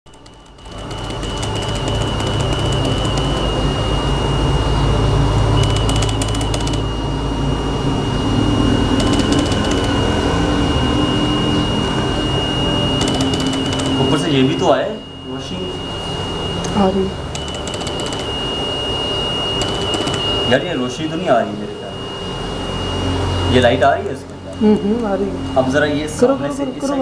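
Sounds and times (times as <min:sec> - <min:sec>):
rapid fine clicking: 0:00.1 - 0:03.6, 0:05.6 - 0:06.9, 0:09.0 - 0:10.0, 0:13.0 - 0:14.0, 0:17.3 - 0:18.4, 0:19.6 - 0:20.4
low hum: 0:00.1 - 0:27.0
stepper motor whine: 0:00.1 - 0:27.0.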